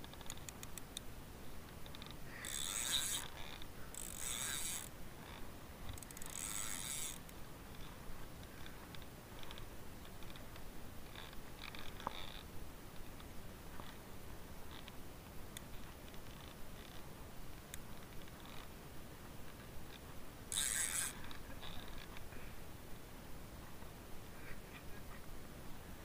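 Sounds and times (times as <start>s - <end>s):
light ticks: 0.0s - 3.3s, 14.7s - 18.7s
fishing reel ratcheting: 1.8s - 7.9s, 11.1s - 12.5s, 15.6s - 17.0s, 18.4s - 18.7s, 19.9s - 22.1s.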